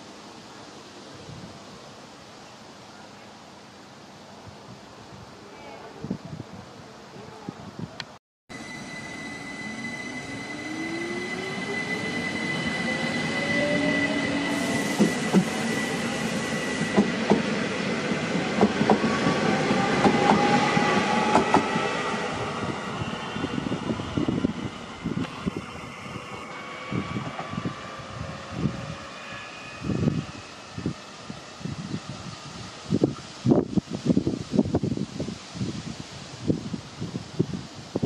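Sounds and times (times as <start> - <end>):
train whine: 8.5 - 34.9.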